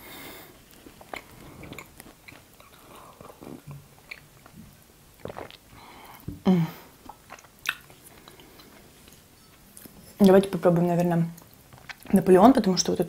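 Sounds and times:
woman sipping and swallowing: 5.2s - 8.8s
wet mouth clicks: 7.0s - 8.4s.

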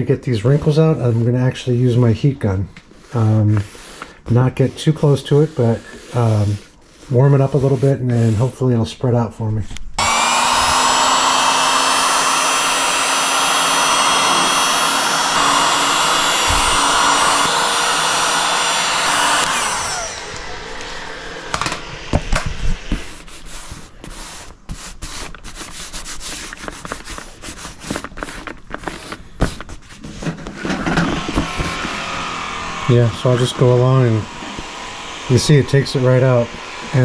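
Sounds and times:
heat gun blowing whine: 10.0s - 23.0s, 30.6s - 37.0s.

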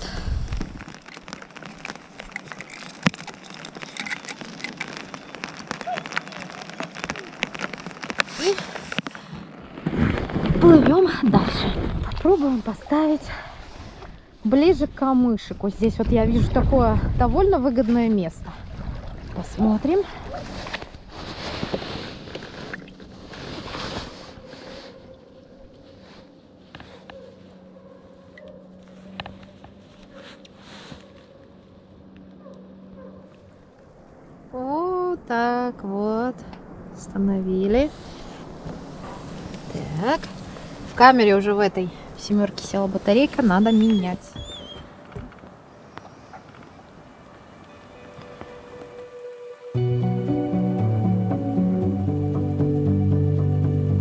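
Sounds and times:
wind on microphone: 0.0s - 0.8s, 9.7s - 24.9s
rain on inflatable boat and lake: 0.0s - 13.1s, 37.8s - 51.4s
oars pulling through water: 0.3s - 14.3s, 17.8s - 31.4s, 37.8s - 49.1s
sharp raindrop tap: 3.0s - 9.2s.

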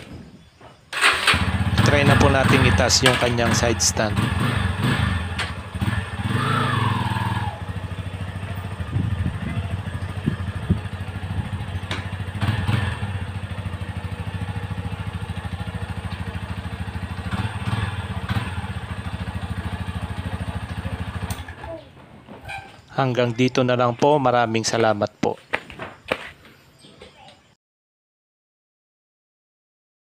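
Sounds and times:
motorcycle engine idling: 0.4s - 21.8s.

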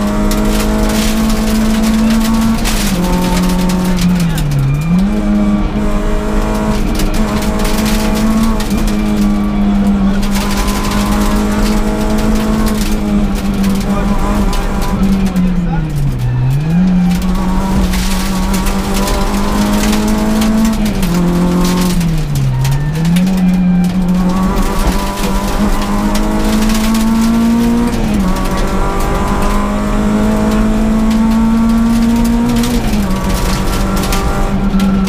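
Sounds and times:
gear change: 0.0s - 35.0s
rally car engine revving: 0.0s - 35.0s.

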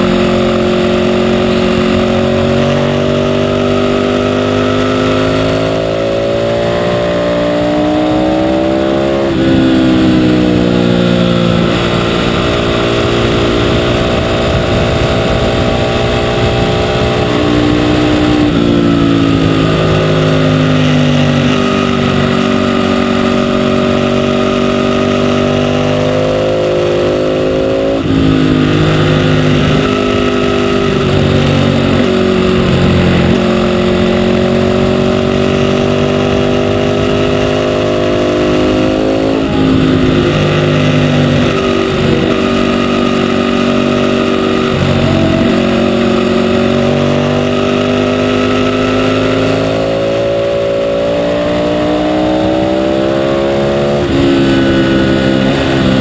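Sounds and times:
motorcycle engine revving: 0.0s - 56.0s
wind rushing: 12.4s - 19.9s.

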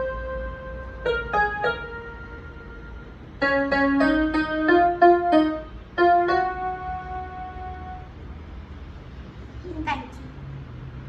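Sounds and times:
electronic keyboard piano melody: 0.0s - 8.2s.

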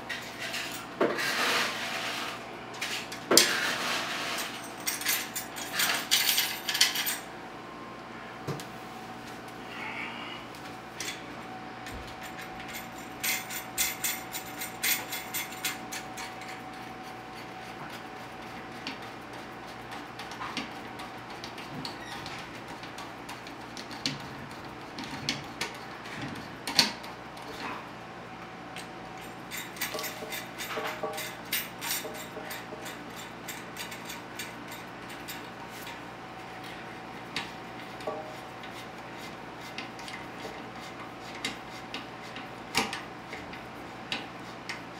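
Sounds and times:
faint steady hum: 4.6s - 23.8s.

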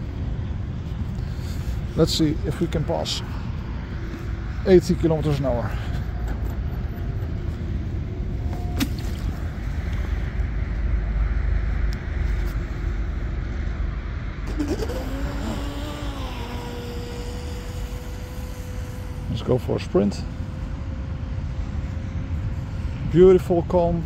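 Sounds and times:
low rumble: 0.0s - 23.3s
model boat motor whining: 14.5s - 21.4s.

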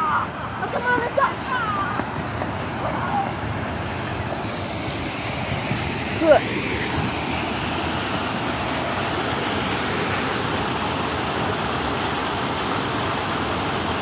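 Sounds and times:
rushing water: 0.0s - 14.0s.

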